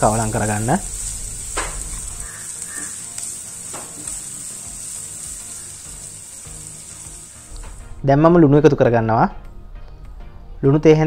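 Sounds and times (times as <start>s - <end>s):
food sizzling in oil: 0.0s - 7.9s.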